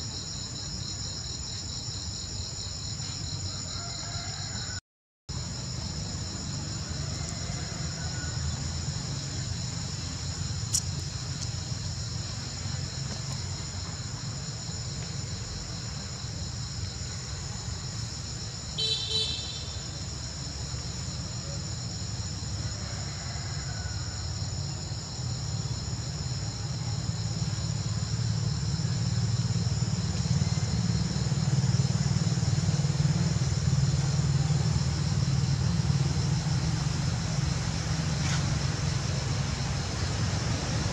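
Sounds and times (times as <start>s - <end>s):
insects droning: 0.0s - 40.9s.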